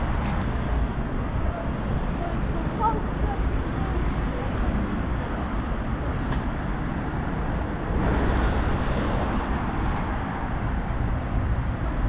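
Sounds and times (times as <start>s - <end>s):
rumble of passing cars: 0.0s - 12.0s
vehicle passing by: 7.4s - 11.7s.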